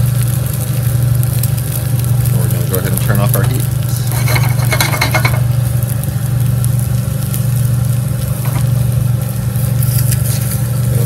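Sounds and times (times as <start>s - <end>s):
low mechanical hum: 0.0s - 11.0s
spatula scraping pan: 3.9s - 5.5s.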